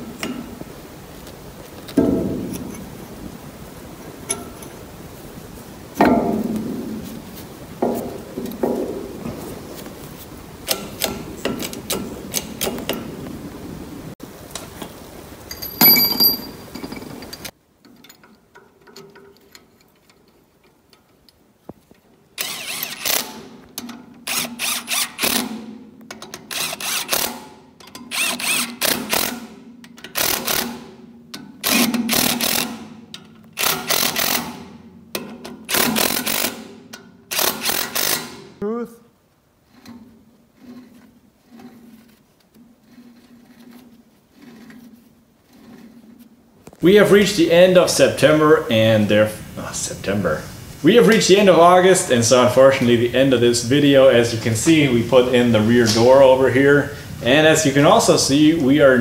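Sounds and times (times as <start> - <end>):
ringing metal clank: 15.5 - 17.4
cordless power tool bursts: 22.4 - 23.5, 24.2 - 25.6, 26.5 - 30.9, 31.6 - 32.9, 33.6 - 34.7, 35.7 - 38.5.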